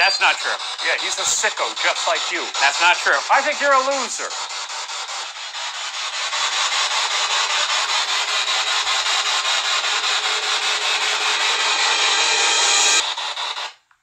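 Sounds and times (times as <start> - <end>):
pulsing radio static: 0.0 - 4.5.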